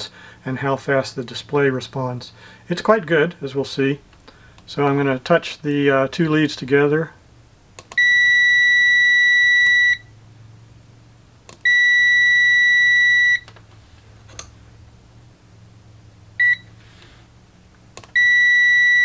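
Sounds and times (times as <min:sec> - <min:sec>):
probe tips clicking: 0:07.8 - 0:08.0, 0:17.9 - 0:18.2
multimeter buzzer beeping: 0:08.0 - 0:10.1, 0:11.6 - 0:13.5, 0:16.4 - 0:16.7, 0:18.1 - 0:19.0.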